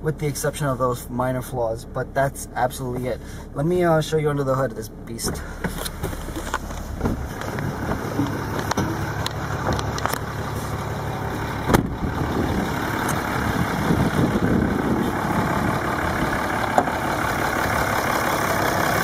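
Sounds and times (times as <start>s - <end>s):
diesel truck engine idling: 0.0s - 19.0s
sharp thump: 11.7s - 12.0s.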